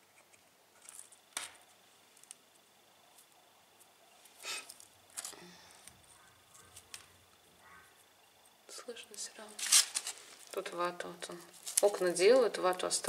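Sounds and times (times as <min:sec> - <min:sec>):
plaster chips crackling: 0:00.2 - 0:08.6, 0:09.2 - 0:13.0
debris rustling: 0:09.2 - 0:13.0.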